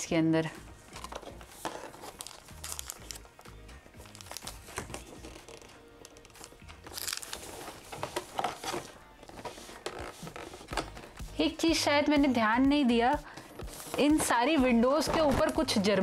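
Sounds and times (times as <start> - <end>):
background music: 0.0 - 16.0
cardboard crinkling and tearing: 1.0 - 3.2, 4.0 - 10.7.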